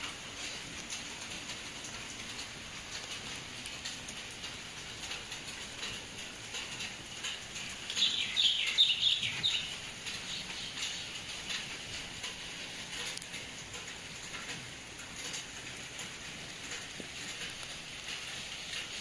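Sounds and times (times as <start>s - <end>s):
small birds chirping: 7.9s - 11.3s.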